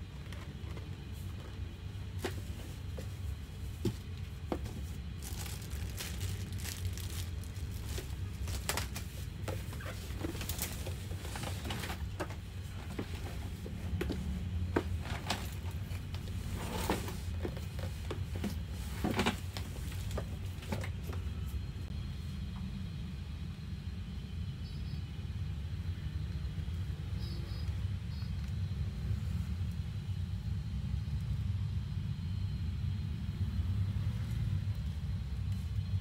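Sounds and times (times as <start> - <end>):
low hum: 0.0 - 36.0
wrapping sheet rustling: 2.2 - 12.2.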